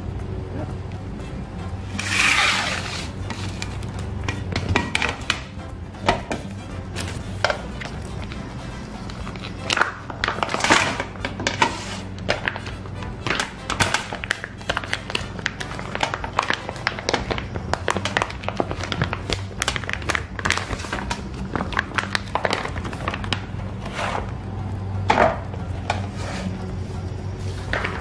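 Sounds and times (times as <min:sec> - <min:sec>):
plastic packaging crinkling: 0:13.3 - 0:23.5.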